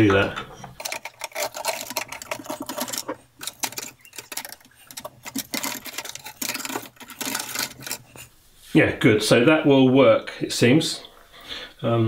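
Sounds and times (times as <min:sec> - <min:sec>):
plastic tubes and cables clicking: 0:00.0 - 0:08.3.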